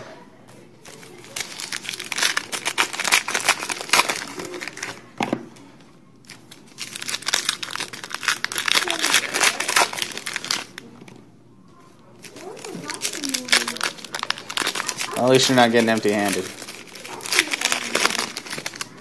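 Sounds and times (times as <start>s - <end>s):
foil wrappers crinkling: 0.8s - 5.2s, 6.2s - 11.2s, 12.1s - 19.0s.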